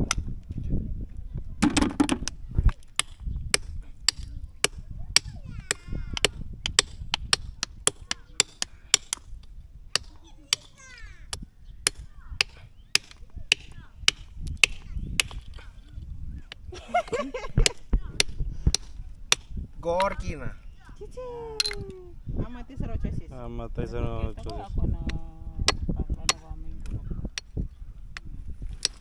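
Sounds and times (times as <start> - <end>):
hammer and stone knocking shells: 2.9 - 10.7, 28.2 - 29.0.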